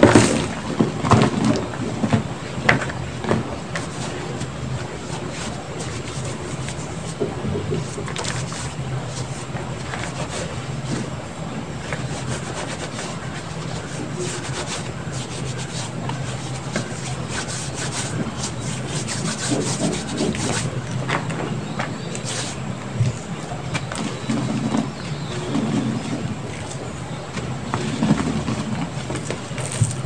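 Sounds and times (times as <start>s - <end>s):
steady low hum: 0.0s - 30.0s
hands rubbing gritty powder: 3.7s - 7.2s, 7.8s - 11.2s, 11.8s - 20.8s, 22.2s - 22.6s.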